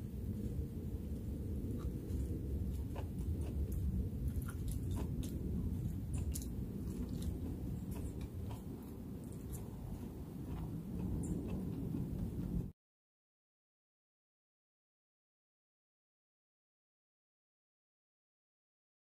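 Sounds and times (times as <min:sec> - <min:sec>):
steady low rumble: 0:00.0 - 0:12.8
person chewing crunchy food: 0:01.5 - 0:12.7.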